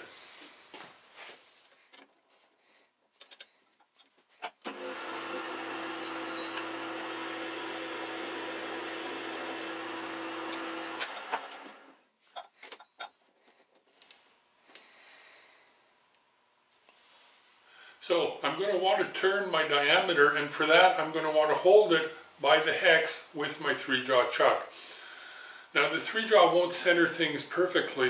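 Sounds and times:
lathe running: 0:04.7 - 0:11.9.

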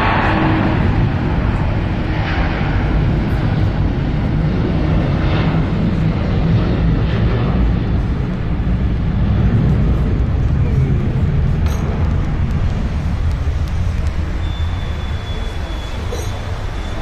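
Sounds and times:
jet engines roaring: 0:00.0 - 0:17.0
passing traffic whooshes: 0:06.4 - 0:17.0.

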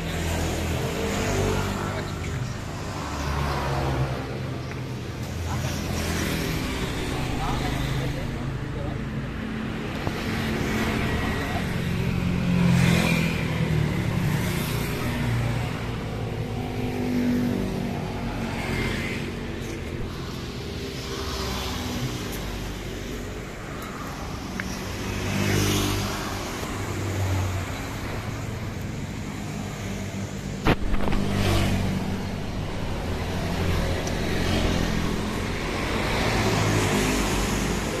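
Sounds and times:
vehicles passing: 0:00.0 - 0:38.0.

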